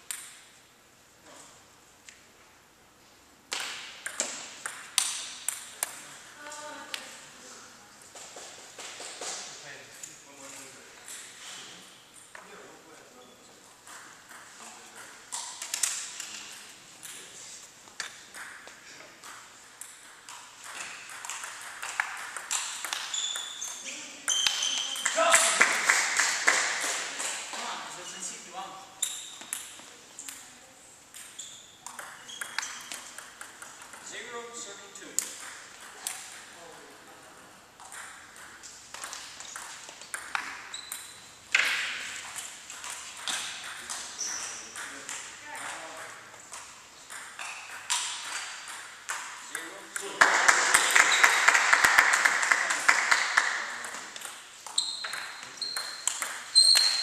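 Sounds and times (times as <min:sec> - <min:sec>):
table tennis ball bouncing: 0:00.0 - 0:00.5, 0:03.5 - 0:06.0, 0:13.8 - 0:16.2, 0:18.0 - 0:27.5, 0:29.0 - 0:30.4, 0:31.1 - 0:34.4, 0:35.0 - 0:36.6, 0:37.7 - 0:57.0.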